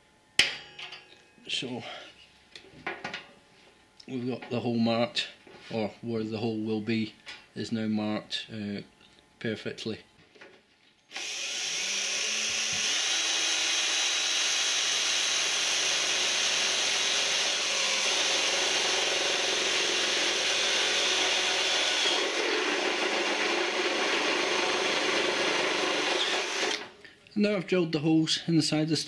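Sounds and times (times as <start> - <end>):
cordless drill boring through metal: 11.1 - 26.9.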